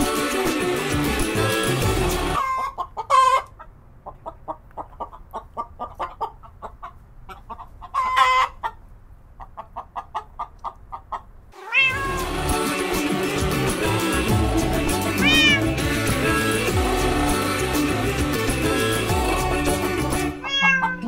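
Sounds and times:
background music: 0:00.0 - 0:02.4, 0:11.8 - 0:21.0
kitten mewing: 0:11.6 - 0:12.3, 0:15.2 - 0:15.8, 0:20.4 - 0:21.0
kitten chirping: 0:11.7 - 0:12.2, 0:15.2 - 0:15.8, 0:20.4 - 0:21.0.

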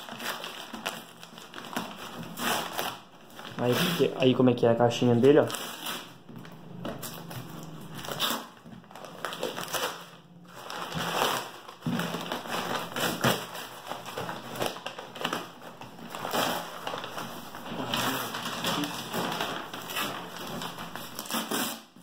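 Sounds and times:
paper wrapping tearing: 0:00.0 - 0:04.2, 0:07.7 - 0:22.0.

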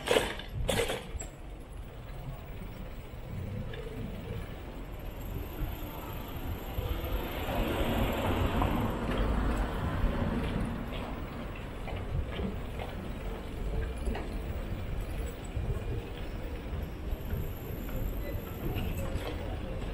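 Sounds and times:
wind rumble on microphone: 0:08.8 - 0:19.9.

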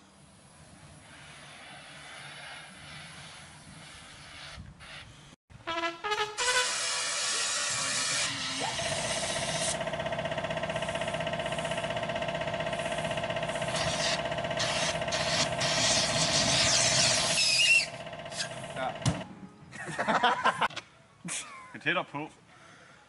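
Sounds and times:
flamethrower hissing and whining: 0:06.4 - 0:18.9.

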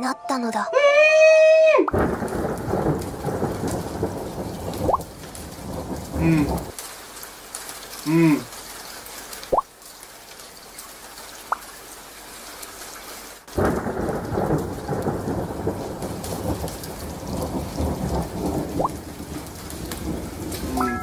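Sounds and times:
thunder rumble: 0:01.9 - 0:07.2, 0:13.5 - 0:21.0
rain hiss: 0:01.9 - 0:21.0.

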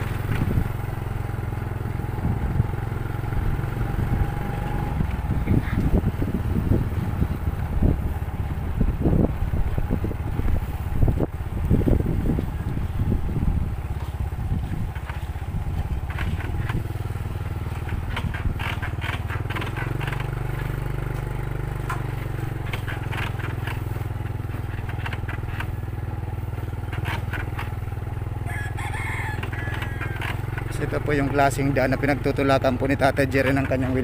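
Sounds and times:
motorcycle engine running: 0:00.0 - 0:34.0
clicks and rattles: 0:14.9 - 0:26.0, 0:26.6 - 0:28.0.

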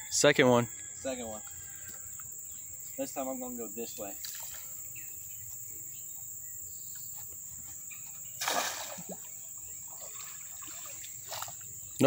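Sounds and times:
high insect drone: 0:00.0 - 0:12.0
net splashing through water: 0:08.4 - 0:09.3, 0:09.9 - 0:11.6.

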